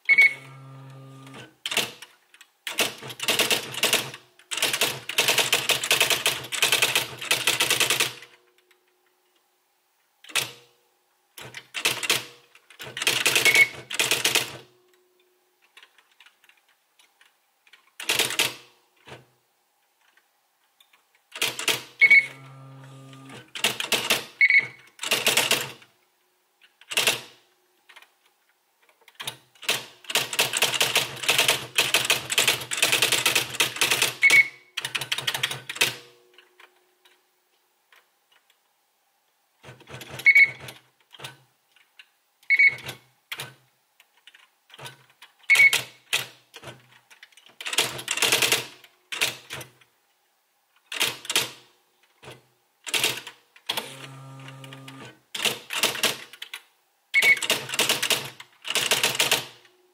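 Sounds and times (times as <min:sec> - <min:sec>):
electronic typewriter typing: 0:00.0 - 0:08.4, 0:11.4 - 0:14.7, 0:17.7 - 0:19.2, 0:21.3 - 0:25.9, 0:26.8 - 0:28.1, 0:29.1 - 0:36.1, 0:39.6 - 0:41.4, 0:42.5 - 0:43.6, 0:44.2 - 0:49.8, 0:50.9 - 0:59.7
short high beeps: 0:00.1 - 0:00.6.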